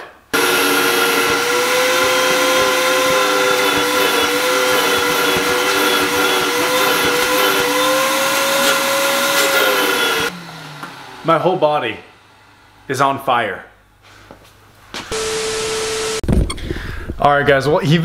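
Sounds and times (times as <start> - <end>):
shop vacuum motor whine: 0.4 - 12.5, 15.1 - 16.2.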